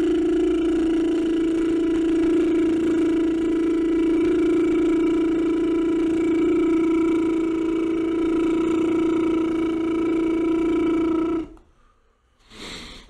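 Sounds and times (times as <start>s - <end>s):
man humming one steady note: 0.0s - 11.7s
short breath: 11.6s - 13.0s.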